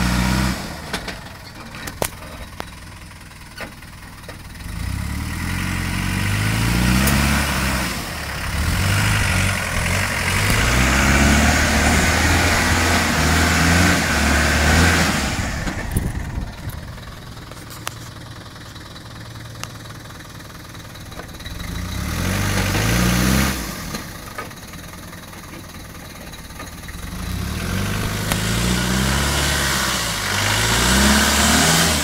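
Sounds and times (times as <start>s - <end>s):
off-road vehicle engine revving: 0.0s - 2.7s, 4.5s - 18.2s, 19.3s - 24.4s, 26.7s - 32.0s.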